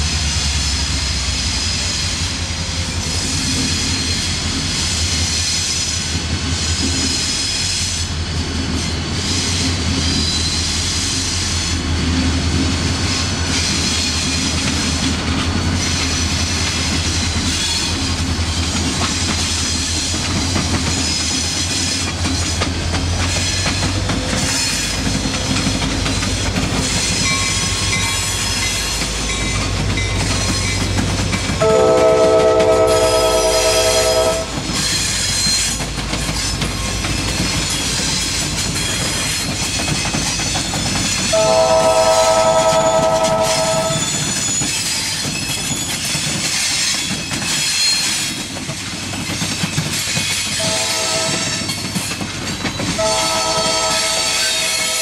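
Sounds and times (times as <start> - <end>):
diesel locomotive engines droning: 0.0 - 55.0
wheels clattering over rails: 12.5 - 32.9, 34.5 - 41.4.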